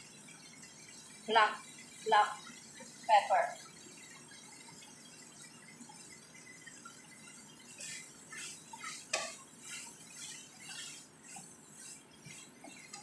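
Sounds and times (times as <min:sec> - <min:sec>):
spatula scraping frying pan: 0:00.1 - 0:13.0.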